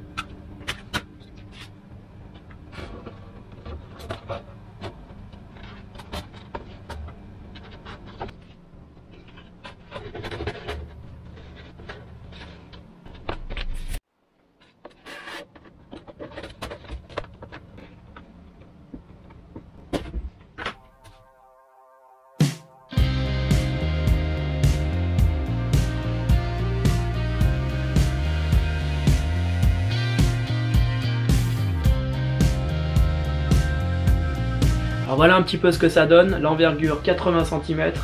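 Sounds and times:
steady low hum: 0:22.7 - 0:38.0.

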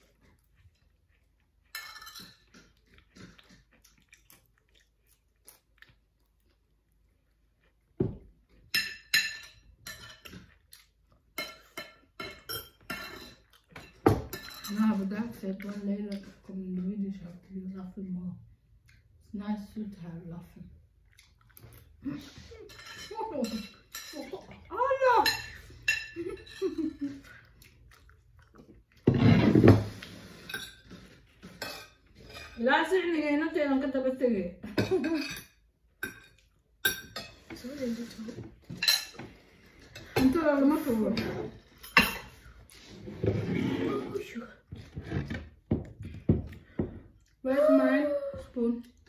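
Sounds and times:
forks clinking on ceramic plates: 0:01.6 - 0:02.7, 0:08.6 - 0:10.6, 0:11.3 - 0:15.2, 0:22.7 - 0:24.4, 0:25.1 - 0:27.1, 0:30.4 - 0:32.6, 0:34.8 - 0:37.6, 0:38.6 - 0:40.4, 0:41.1 - 0:42.4
cutlery clatter: 0:01.6 - 0:03.6, 0:08.6 - 0:10.6, 0:11.3 - 0:16.3, 0:22.6 - 0:24.4, 0:25.2 - 0:27.1, 0:29.1 - 0:32.6, 0:34.7 - 0:42.5.

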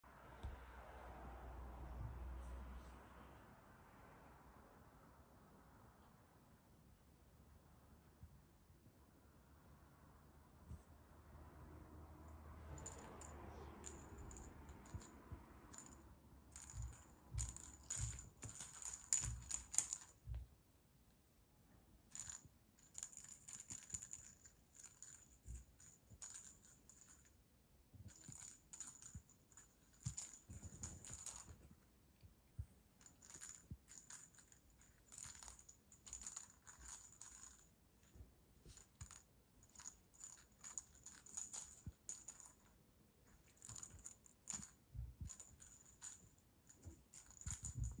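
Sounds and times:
cat toy jingling and clicking: 0:12.6 - 0:20.4, 0:22.1 - 0:27.3, 0:28.0 - 0:31.7, 0:33.0 - 0:37.7, 0:38.6 - 0:42.7, 0:43.3 - 0:48.0.

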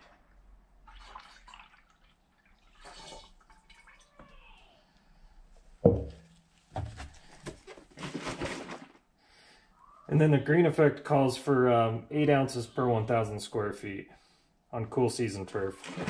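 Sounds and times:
liquid splashing: 0:00.0 - 0:04.2, 0:15.6 - 0:16.0
liquid pouring into plastic tank: 0:00.0 - 0:04.4, 0:07.9 - 0:09.0, 0:15.6 - 0:16.0.

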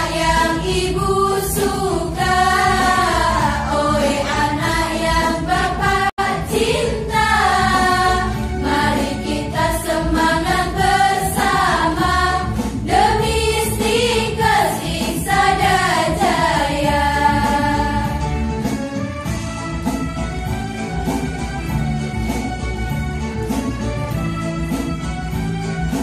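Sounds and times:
choir of women singing: 0:00.0 - 0:18.4.

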